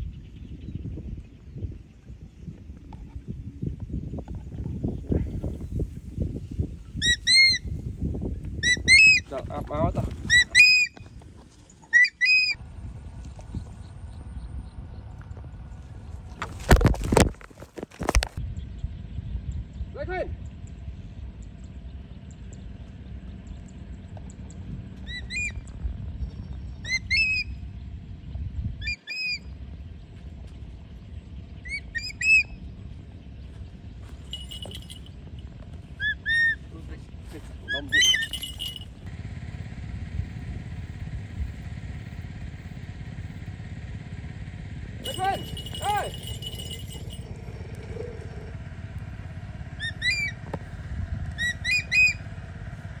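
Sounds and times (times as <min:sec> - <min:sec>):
low steady rumble: 0:00.0 - 0:53.0
bird shrill call notes: 0:07.0 - 0:07.7, 0:10.3 - 0:11.0, 0:11.9 - 0:12.6, 0:31.6 - 0:32.6, 0:37.9 - 0:38.8, 0:49.8 - 0:50.4, 0:51.4 - 0:52.2
hawk-eagle calling shrilly: 0:07.0 - 0:07.8, 0:08.6 - 0:09.3, 0:10.2 - 0:11.1, 0:11.9 - 0:12.6, 0:25.0 - 0:25.6, 0:26.8 - 0:27.5, 0:28.8 - 0:29.5, 0:31.6 - 0:32.6, 0:35.9 - 0:36.7, 0:37.6 - 0:39.0, 0:45.0 - 0:48.6, 0:49.7 - 0:50.5, 0:51.3 - 0:52.4
low rumble: 0:12.6 - 0:17.6, 0:36.6 - 0:53.0.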